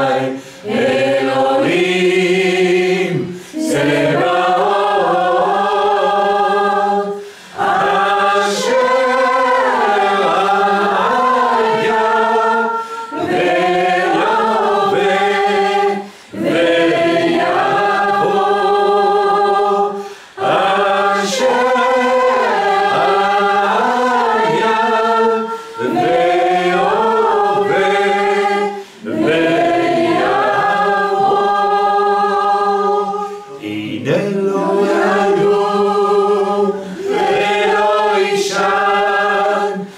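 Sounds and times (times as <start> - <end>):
voices singing worship melody: 0.0 - 39.9.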